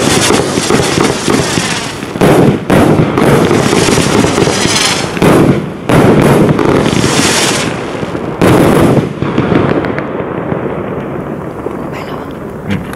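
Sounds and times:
fireworks hissing: 0:00.0 - 0:08.6
fireworks shots and bursts: 0:00.0 - 0:12.9.

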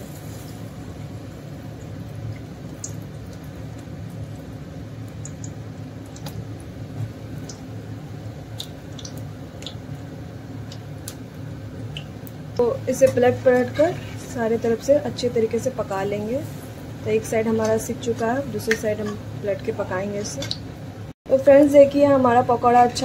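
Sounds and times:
oil crackles and pops: 0:00.0 - 0:14.1
batter deep-frying in oil: 0:00.0 - 0:23.0
low steady hum: 0:00.0 - 0:23.0.

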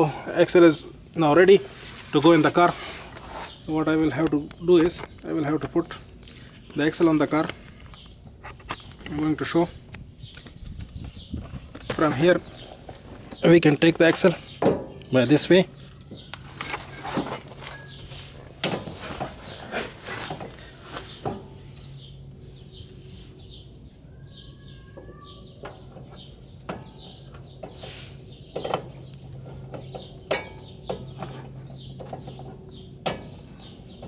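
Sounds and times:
steady low hum: 0:00.0 - 0:24.6
bird chirping: 0:03.4 - 0:34.0
metal knocks and clinks: 0:16.1 - 0:19.0.

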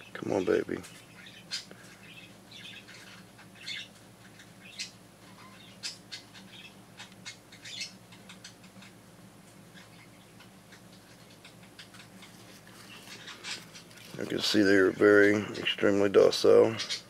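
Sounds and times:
scratchy rustles: 0:12.0 - 0:15.2.

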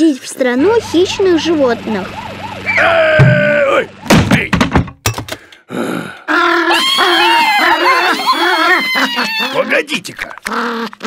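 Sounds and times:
low steady hum: 0:00.6 - 0:04.1
cartoon thuds and knocks: 0:03.2 - 0:05.3
wordless grumbling vocal sounds: 0:10.1 - 0:11.0.

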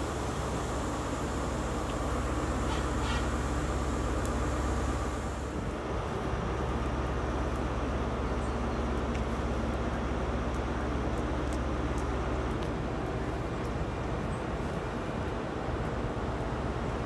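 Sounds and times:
diesel engine idling: 0:00.0 - 0:11.1.

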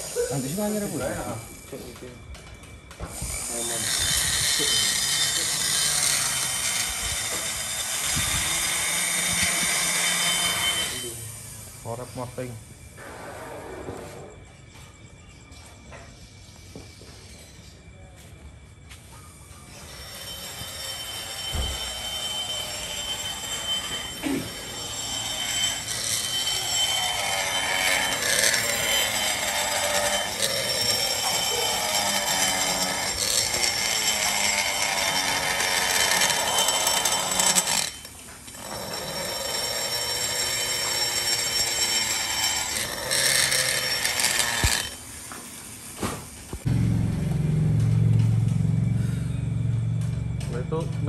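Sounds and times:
electric rotary grinder whining: 0:00.0 - 0:12.3, 0:19.7 - 0:45.7.

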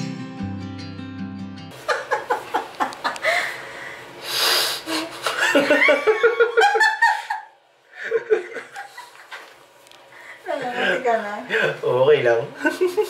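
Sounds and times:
laughter in pulsing bursts: 0:01.8 - 0:03.7, 0:04.9 - 0:09.4
short hiss: 0:04.2 - 0:04.9.

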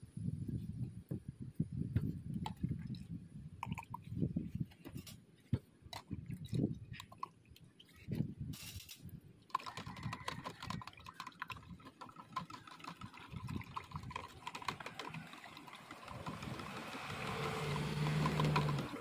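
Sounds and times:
liquid rushing and bubbling: 0:09.6 - 0:19.0.

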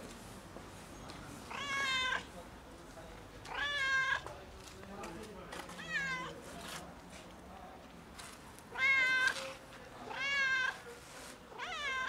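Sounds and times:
cat meowing loudly: 0:01.5 - 0:02.3, 0:03.5 - 0:04.3, 0:05.8 - 0:06.4, 0:08.7 - 0:09.4, 0:10.1 - 0:10.8, 0:11.5 - 0:12.0.

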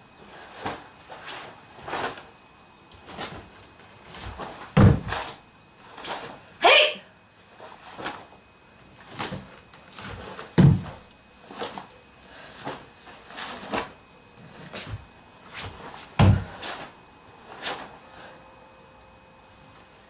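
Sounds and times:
bare foot stamping on wooden floor: 0:04.2 - 0:05.2, 0:10.5 - 0:11.0, 0:16.2 - 0:16.6.

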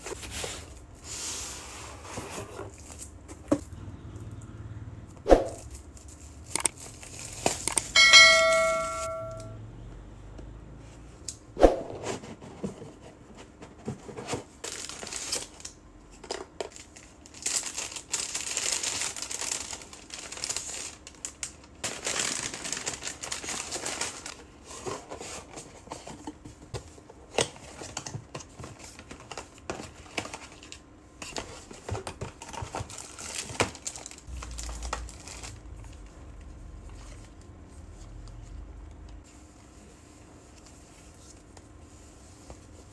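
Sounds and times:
bell-like chime: 0:08.0 - 0:09.6
plastic wrap tearing and crinkling: 0:14.6 - 0:24.4, 0:32.4 - 0:36.1.

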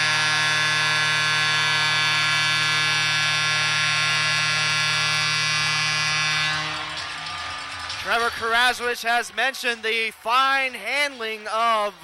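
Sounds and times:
goal horn blast: 0:00.0 - 0:08.7.

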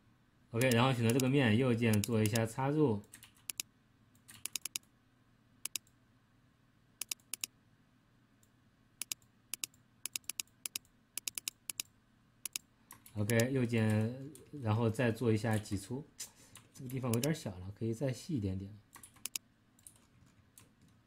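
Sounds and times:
mouse and keyboard clicks: 0:00.6 - 0:01.3, 0:01.9 - 0:02.5, 0:03.4 - 0:04.9, 0:05.6 - 0:05.9, 0:07.0 - 0:07.5, 0:09.0 - 0:14.0, 0:17.0 - 0:17.3, 0:19.0 - 0:21.0.

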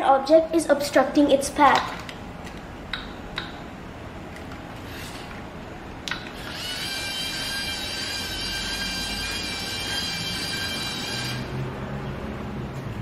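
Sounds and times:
electric motors whining: 0:06.1 - 0:11.7.

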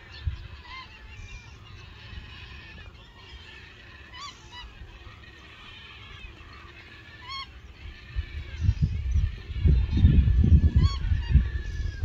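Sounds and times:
wind buffeting microphone: 0:00.0 - 0:03.0, 0:07.2 - 0:12.0
geese honking: 0:00.0 - 0:12.0.

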